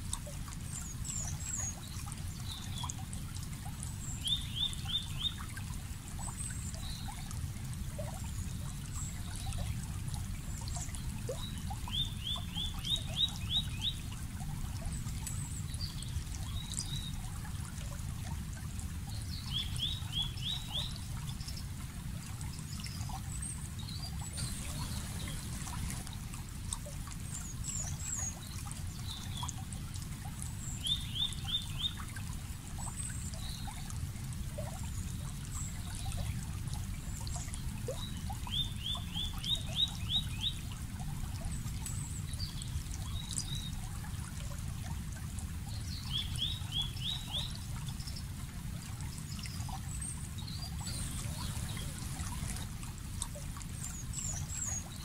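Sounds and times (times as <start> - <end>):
water trickling and rushing: 0.0 - 55.0
birds singing: 24.4 - 26.0, 50.8 - 52.6
high bird chirps: 24.4 - 26.0, 50.9 - 52.5.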